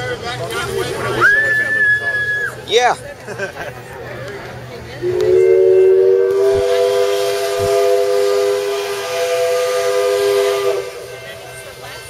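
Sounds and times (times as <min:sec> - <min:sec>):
steam hissing: 0:05.0 - 0:12.0
steam locomotive whistle: 0:05.0 - 0:12.0.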